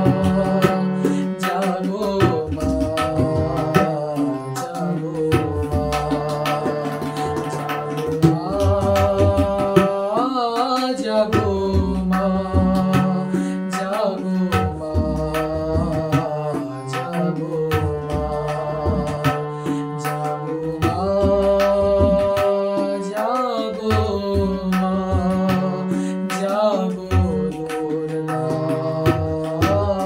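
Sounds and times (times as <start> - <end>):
harmonium chords: 0.0 - 30.0
man singing: 0.0 - 30.0.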